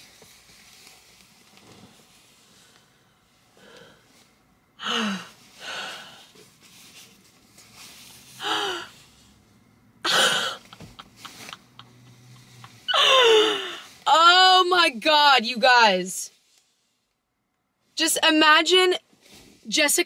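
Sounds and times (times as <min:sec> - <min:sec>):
woman gasping and squealing: 0:04.8 - 0:06.3, 0:08.4 - 0:09.0, 0:10.1 - 0:11.2, 0:12.8 - 0:14.0.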